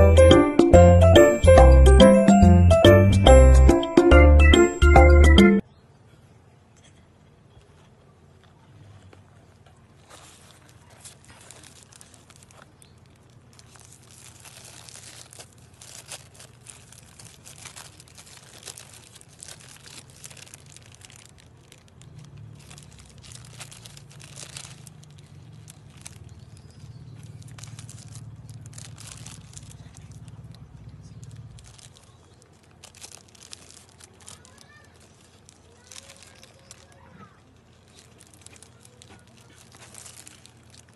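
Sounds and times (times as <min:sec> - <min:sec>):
paper packaging crinkling: 0:09.9 - 0:40.9.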